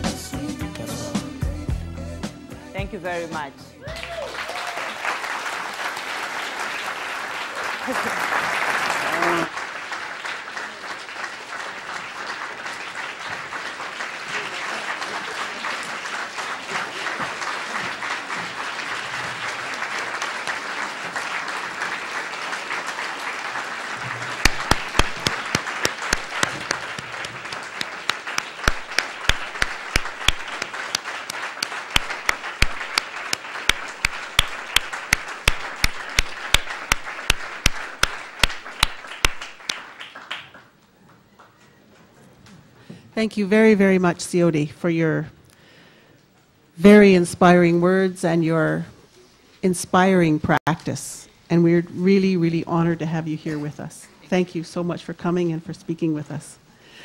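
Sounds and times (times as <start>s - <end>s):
audience applause: 3.8s - 40.8s
loud sharp single claps: 24.3s - 40.5s.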